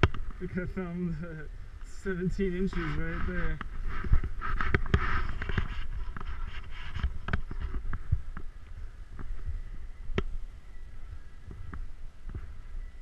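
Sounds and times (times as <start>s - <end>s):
wind on camera: 0.0s - 13.0s
snowboard sliding over snow: 2.0s - 7.8s.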